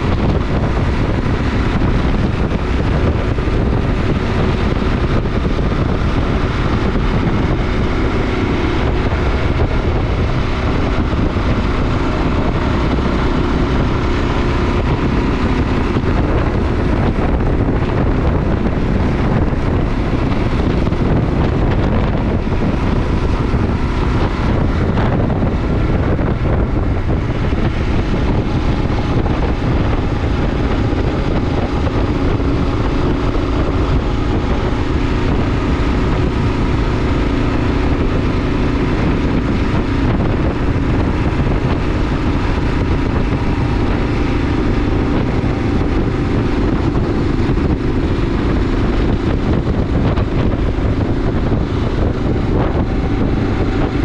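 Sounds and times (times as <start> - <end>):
motorcycle engine cruising: 0.0 - 54.0
wind rushing over microphone: 0.0 - 54.0.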